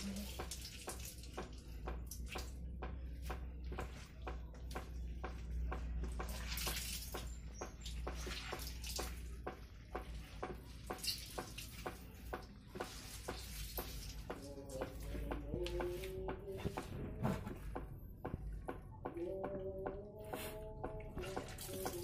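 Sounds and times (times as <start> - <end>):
water dripping on concrete: 0.0 - 15.9, 20.8 - 22.0.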